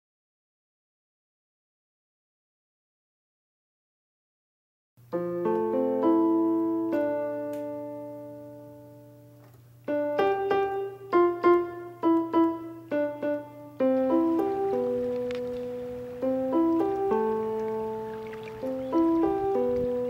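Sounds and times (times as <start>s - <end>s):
solo piano: 5.0s - 20.0s.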